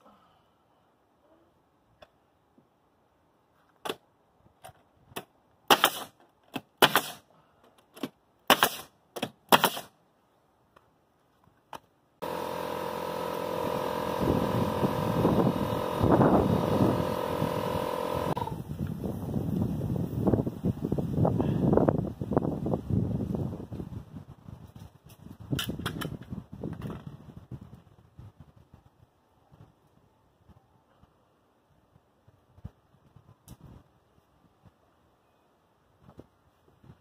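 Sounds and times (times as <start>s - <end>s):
nail gun cracks: 5.2s - 7.3s, 7.9s - 10.0s.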